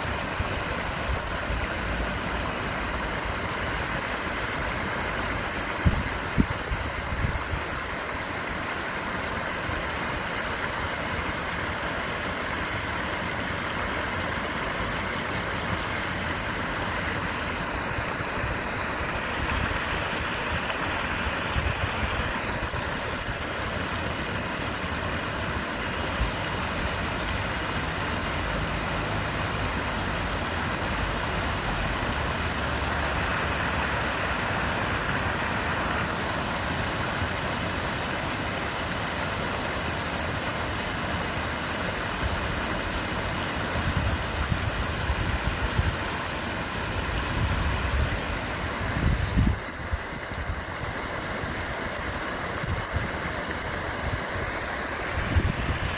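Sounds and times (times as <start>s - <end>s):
river water rushing through rapids: 0.0s - 55.9s.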